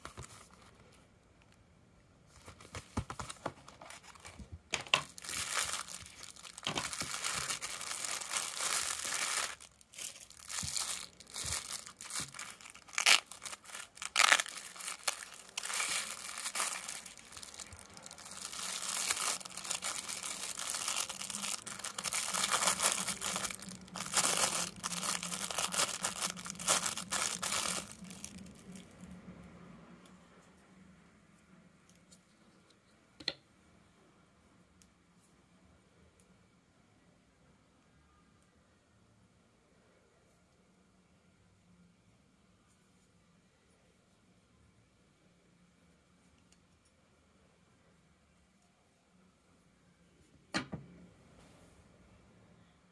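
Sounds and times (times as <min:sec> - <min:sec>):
cardboard rustling and clicking: 0:02.4 - 0:05.8
plastic wrapping crinkling and tearing: 0:02.4 - 0:29.0.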